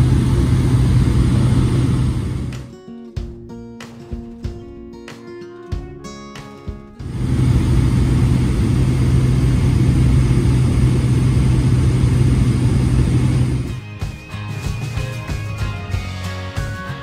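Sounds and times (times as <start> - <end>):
aircraft engine and propeller drone: 0.0 - 2.7, 7.0 - 13.8
rushing air noise: 0.0 - 2.7, 7.0 - 13.8.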